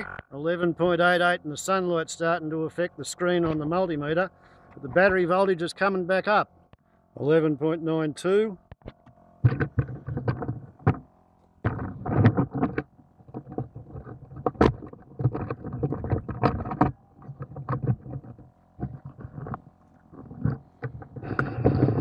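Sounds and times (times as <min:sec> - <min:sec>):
air compressor humming: 0:01.4 - 0:22.0.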